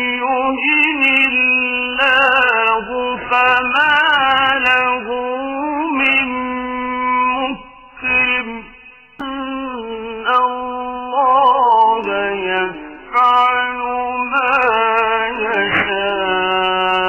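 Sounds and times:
voice-like held notes with vibrato: 0:01.2 - 0:17.0.

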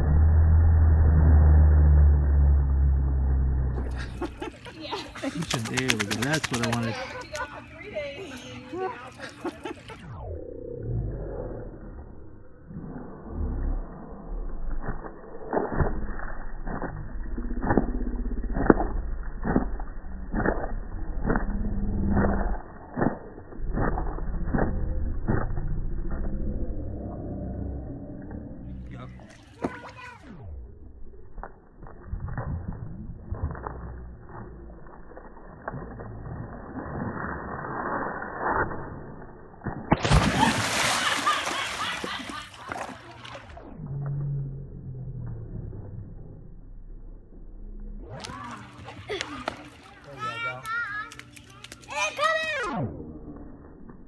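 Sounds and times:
dog splashing into water: 0:05.2 - 0:07.4, 0:39.7 - 0:43.6
slowed dog shaking water off: 0:05.2 - 0:07.5.

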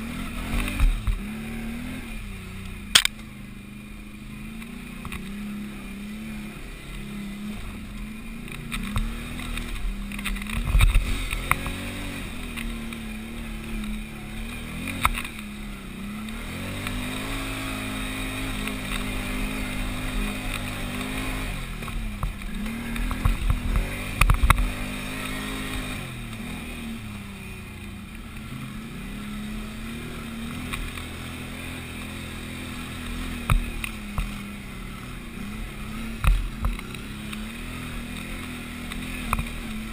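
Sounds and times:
atv engine working uphill: 0:00.0 - 0:39.9
knocks and thuds over bumps: 0:07.6 - 0:15.5, 0:16.2 - 0:26.6, 0:32.6 - 0:34.5, 0:35.2 - 0:39.9.

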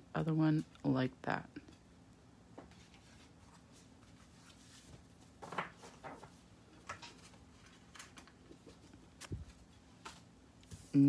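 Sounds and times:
paper rustling: 0:02.7 - 0:10.3.

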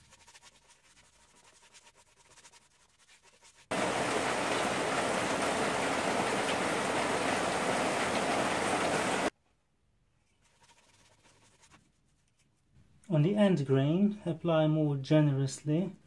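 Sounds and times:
paintbrush strokes on wood: 0:00.0 - 0:03.7, 0:10.2 - 0:12.4
heavy steady rain: 0:03.7 - 0:09.3.

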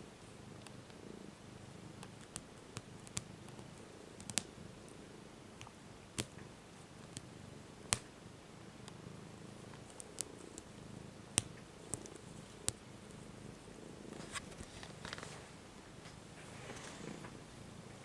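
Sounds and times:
cat purring: 0:00.0 - 0:18.0
soft rustling: 0:09.5 - 0:18.0.

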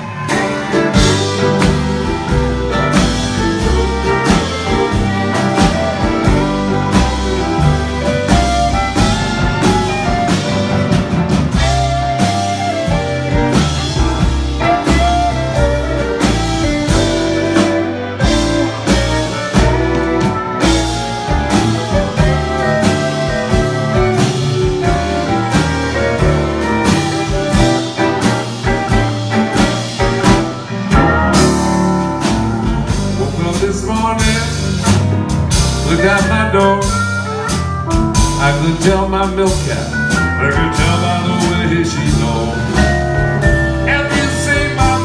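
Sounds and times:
fiddles bowing melody: 0:00.0 - 0:33.7
steel guitar: 0:00.0 - 0:34.0
electric guitar: 0:00.0 - 0:38.6
drums keeping steady beat: 0:00.0 - 0:45.0.

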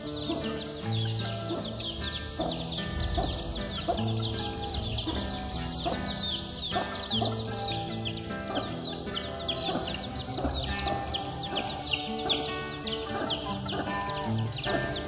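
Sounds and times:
background music with held notes: 0:00.0 - 0:15.0
chicks peeping: 0:00.0 - 0:15.0.

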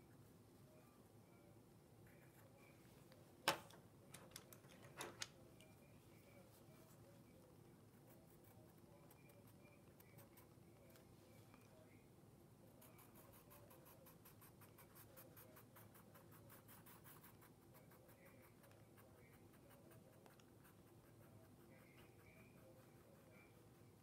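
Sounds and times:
pencil scratching on paper: 0:12.8 - 0:23.6.

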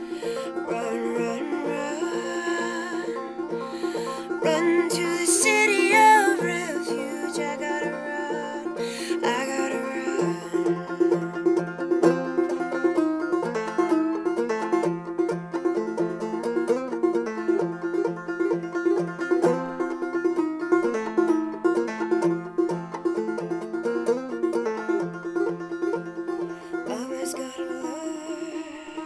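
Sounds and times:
solo banjo playing: 0:00.0 - 0:29.0.

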